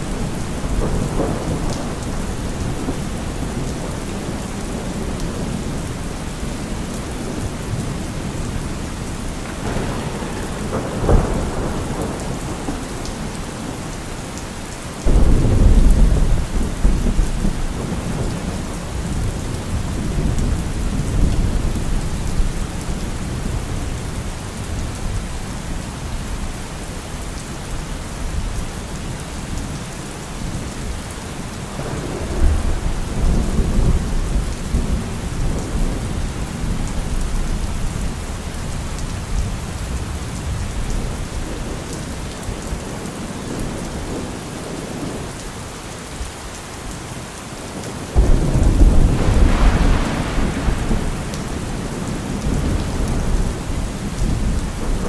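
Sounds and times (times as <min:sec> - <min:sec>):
low thunder rumble: 0:00.0 - 0:08.7, 0:09.4 - 0:13.9, 0:15.0 - 0:26.6, 0:31.8 - 0:44.2, 0:48.2 - 0:55.0
heavy rain: 0:00.0 - 0:55.0
thunder crack: 0:09.4 - 0:12.9, 0:48.2 - 0:53.6.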